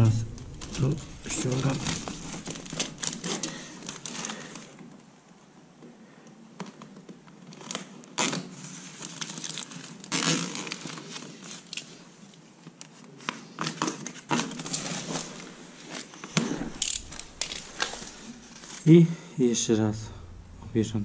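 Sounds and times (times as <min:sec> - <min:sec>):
foil duct crinkling and rustling: 0:00.4 - 0:04.8, 0:07.4 - 0:18.9.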